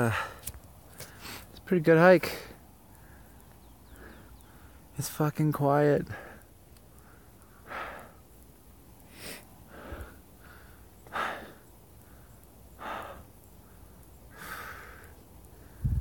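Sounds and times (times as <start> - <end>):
person breathing heavily: 0.0 - 1.5, 6.1 - 8.3, 9.1 - 16.0.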